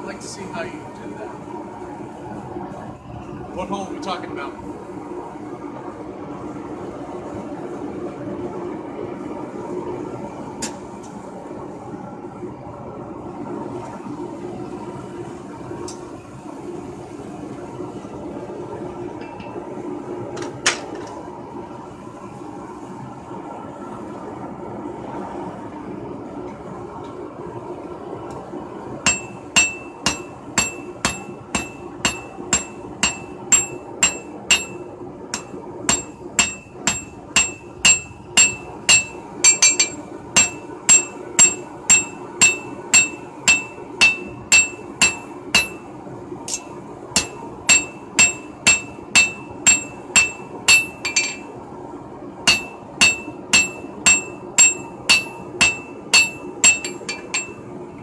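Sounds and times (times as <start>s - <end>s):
hammer striking steel on anvil: 29.1s - 45.8s, 46.5s - 51.5s, 52.5s - 57.6s.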